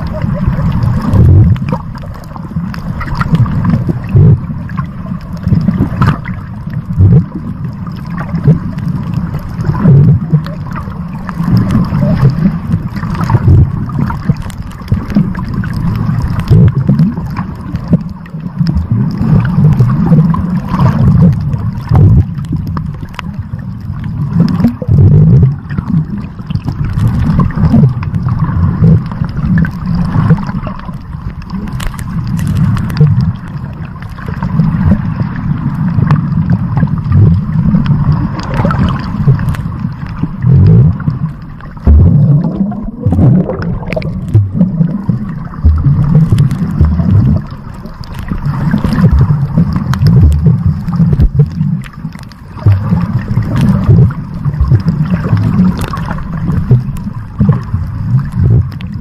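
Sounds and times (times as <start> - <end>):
underwater rumble of moving water: 0.0 - 59.0
water gurgling: 0.0 - 59.0
faint clicks: 29.0 - 34.5, 37.8 - 40.2, 43.5 - 52.4.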